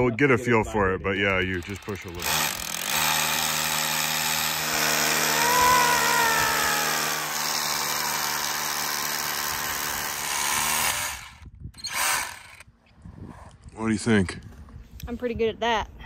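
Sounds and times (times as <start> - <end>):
hammer drill boring into concrete: 1.4 - 12.6.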